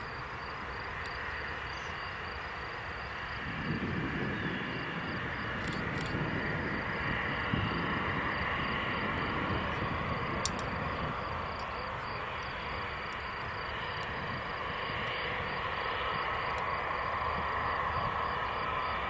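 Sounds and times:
distant jet taxiing: 0.0 - 19.0.

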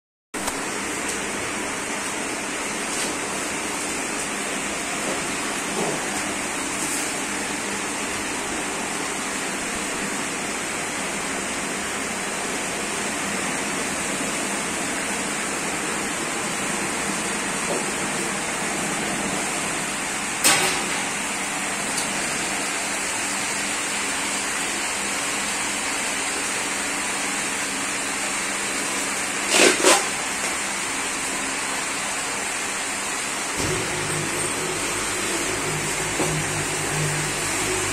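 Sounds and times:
gas burners hissing: 32.2 - 37.9.

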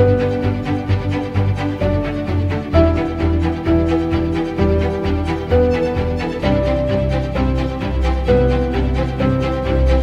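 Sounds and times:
bowed strings: 0.0 - 10.0.

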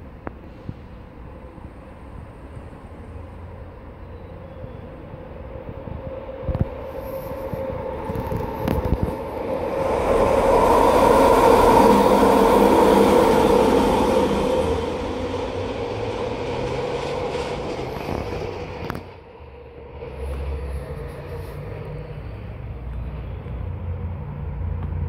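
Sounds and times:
low steady train rumble: 0.0 - 25.0
train passing close by: 0.0 - 25.0.

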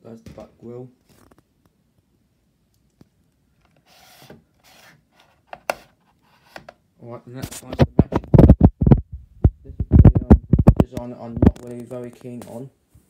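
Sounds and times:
plastic fan handling scrapes: 3.8 - 6.8.

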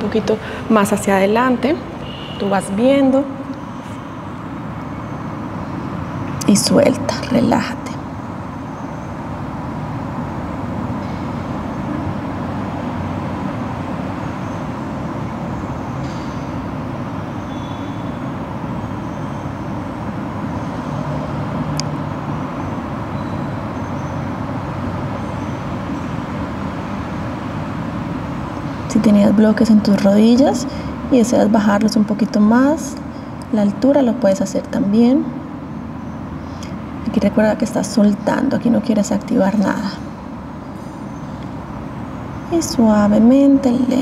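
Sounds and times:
road traffic hum: 0.0 - 44.0
faint high chirps: 17.4 - 19.5.

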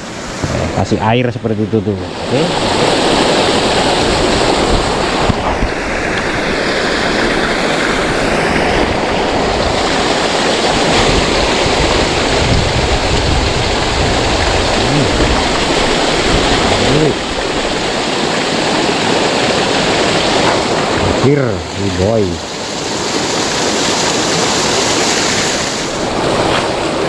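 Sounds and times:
river flowing over rocks: 2.0 - 27.0.

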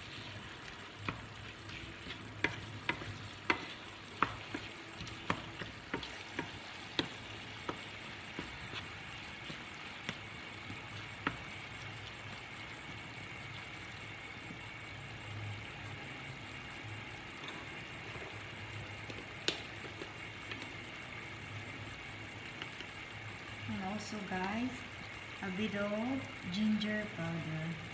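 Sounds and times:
wooden spoon scraping a pan: 0.0 - 11.6
meat sizzling in a frying pan: 0.0 - 27.9.

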